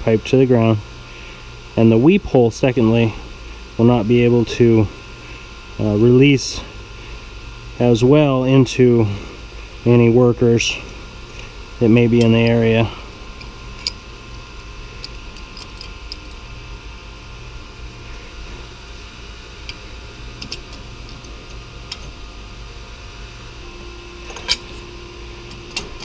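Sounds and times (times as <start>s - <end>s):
machinery hum: 0.0s - 26.0s
low steady tone: 23.6s - 26.0s.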